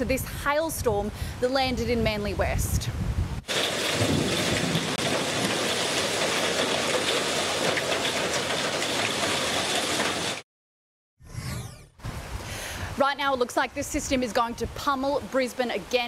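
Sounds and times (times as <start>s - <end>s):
hailstones pelting down: 3.5s - 10.4s
sharp ticks of hailstones striking: 3.5s - 10.4s.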